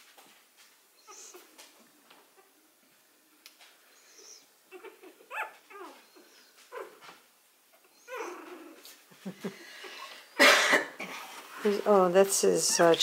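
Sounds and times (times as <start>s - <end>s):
puppies whimpering and squeaking: 1.0s - 1.6s, 3.9s - 9.0s, 12.5s - 13.0s.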